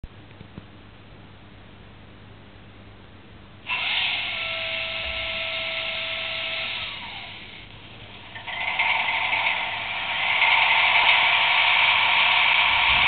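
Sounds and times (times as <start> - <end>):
hissing whining sound effect from speaker: 3.7 - 7.7, 8.4 - 13.0.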